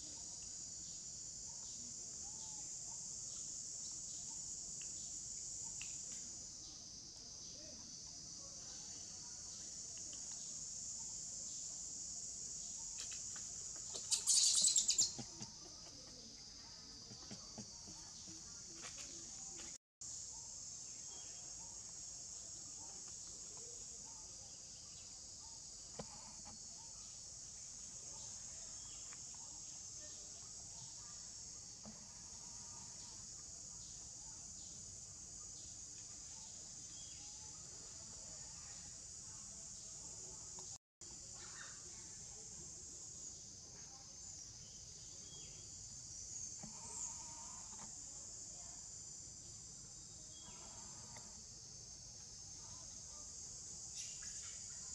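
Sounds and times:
high-pitched insect chorus: 0.0s - 54.9s
loud chirping call: 14.1s - 15.2s.

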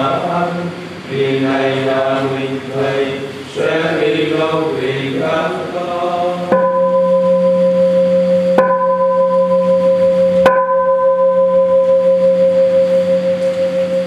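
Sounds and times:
bell ringing: 6.5s - 14.0s.

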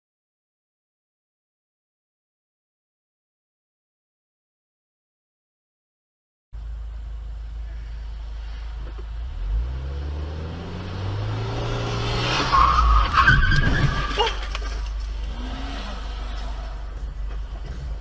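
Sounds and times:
tyres skidding and squealing: 7.6s - 18.0s
car engine pulling away: 8.0s - 18.0s.

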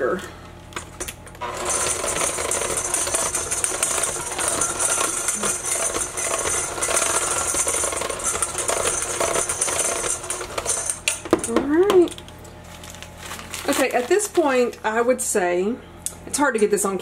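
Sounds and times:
electric hand mixer whirring: 1.4s - 11.5s.

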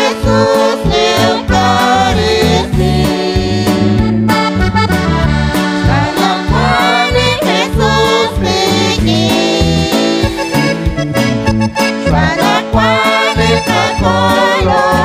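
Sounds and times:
people singing: 0.0s - 4.1s, 5.3s - 10.6s, 12.0s - 15.0s
bass notes: 0.0s - 15.0s
electric guitar: 0.0s - 15.0s
keyboard: 0.0s - 15.0s
steady beat: 1.5s - 9.4s, 10.2s - 14.2s.

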